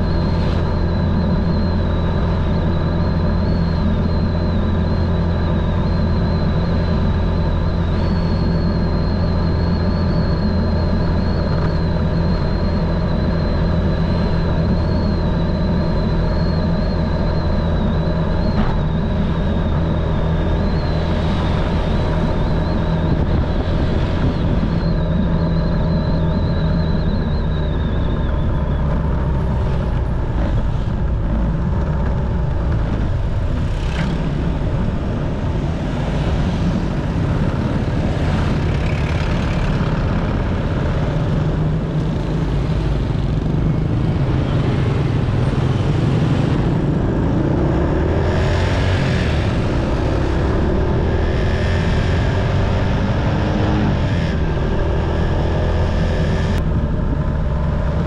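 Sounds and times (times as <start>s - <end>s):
passing traffic: 0.0s - 58.0s
road noise: 0.0s - 58.0s.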